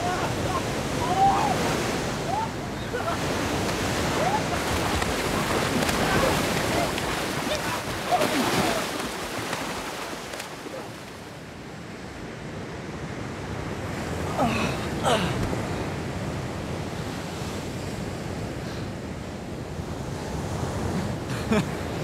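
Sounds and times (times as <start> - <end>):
sea surf breaking: 0.0 - 11.6
water splash: 3.0 - 11.3.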